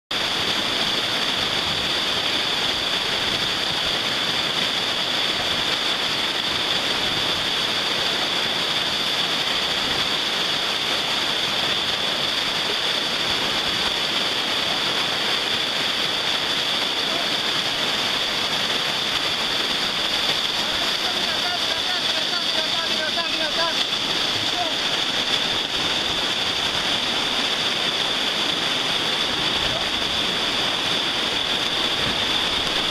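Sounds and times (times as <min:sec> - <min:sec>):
whitewater rapids rushing: 0:00.1 - 0:32.9.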